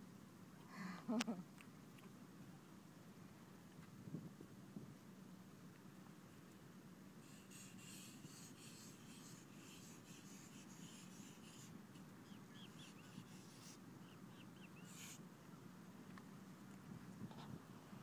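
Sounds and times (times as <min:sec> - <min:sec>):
stick scratching in sand: 0:07.2 - 0:11.8, 0:12.6 - 0:13.8.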